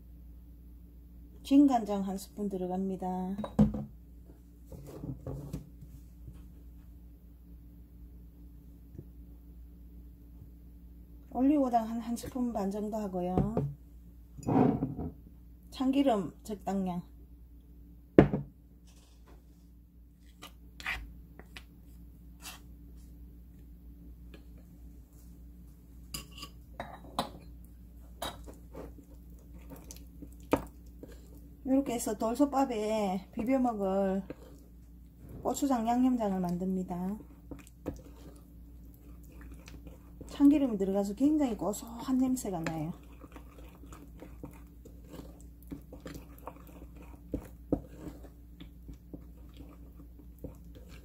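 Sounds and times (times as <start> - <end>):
spoon scraping in a bowl: 18.9 - 19.3, 20.2 - 21.1, 22.4 - 22.7, 26.1 - 26.6, 42.6 - 51.0
spoon stirring sticky paste: 20.2 - 22.7, 28.2 - 51.0.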